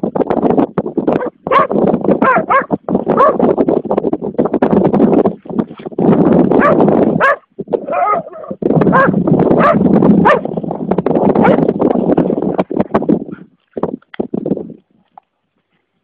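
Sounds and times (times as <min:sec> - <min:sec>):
dog barking and yelping: 0:01.2 - 0:03.4, 0:06.6 - 0:10.5, 0:11.4 - 0:11.7.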